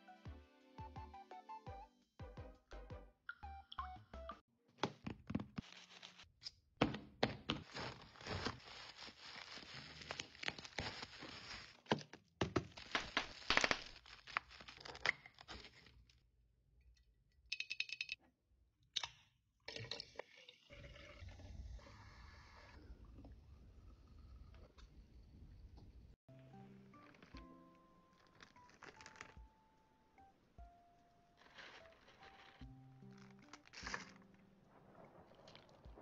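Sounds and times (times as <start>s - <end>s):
packaging tearing and crinkling: 7.6s - 11.8s, 12.8s - 15.9s, 31.4s - 34.4s.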